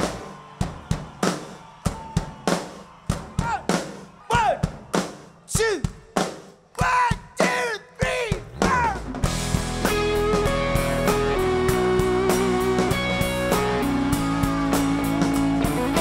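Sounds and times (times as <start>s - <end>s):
drum kit hits: 8.3s - 16.0s.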